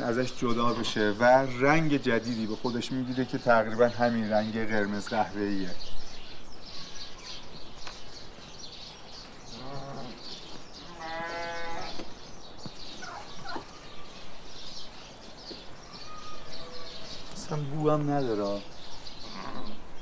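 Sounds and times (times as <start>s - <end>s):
small birds chirping: 0.0s - 20.0s
livestock bleating: 10.8s - 12.0s.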